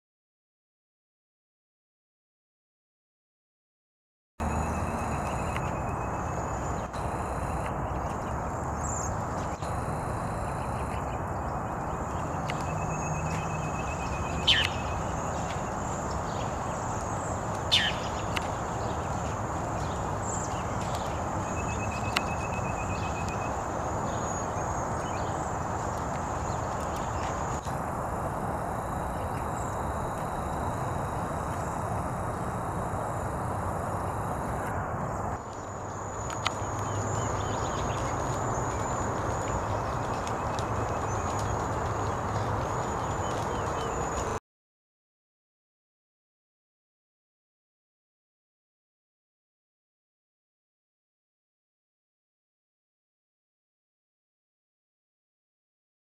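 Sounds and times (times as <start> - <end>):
flock of birds calling: 4.4 - 34.7, 36.3 - 44.4
steady rushing background noise: 4.4 - 44.4
steady background hiss: 21.6 - 39.4.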